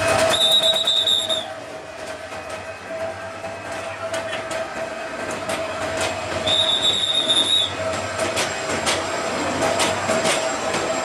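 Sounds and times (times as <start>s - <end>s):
steady train whine: 0.0s - 11.0s
train wheels clicking over rail joints: 0.0s - 11.0s
high squeal: 0.2s - 1.6s, 6.4s - 7.8s.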